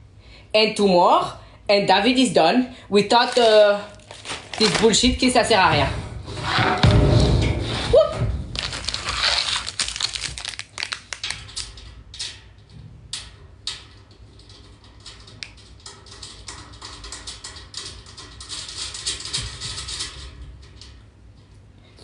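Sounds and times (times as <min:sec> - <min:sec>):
shelf parts rustling and clicking: 0:03.1 - 0:06.8.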